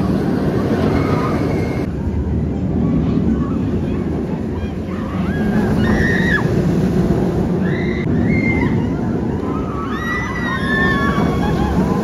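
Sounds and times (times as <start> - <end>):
roller coaster rumbling on track: 0.0 - 12.0
riders screaming: 4.7 - 6.7, 7.5 - 12.0.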